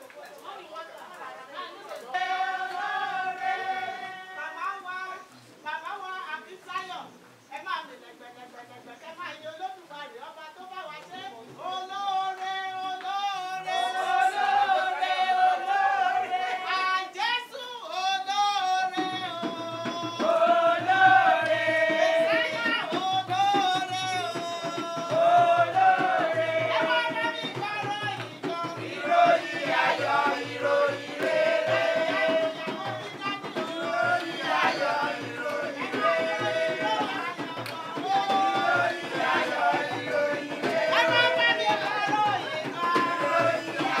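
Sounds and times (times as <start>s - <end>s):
steady drum beat: 2.2s - 4.2s, 13.5s - 16.8s, 18.3s - 44.0s.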